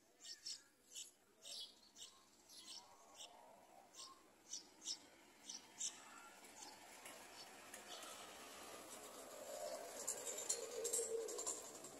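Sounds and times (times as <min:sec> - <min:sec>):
nestlings chirping: 0:00.2 - 0:06.7.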